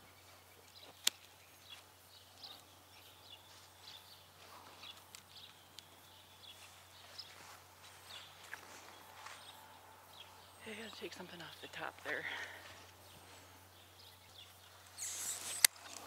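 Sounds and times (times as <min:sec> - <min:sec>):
faint bird chirps: 0:00.0 - 0:16.0
pruning shears snipping branch: 0:14.9 - 0:16.0.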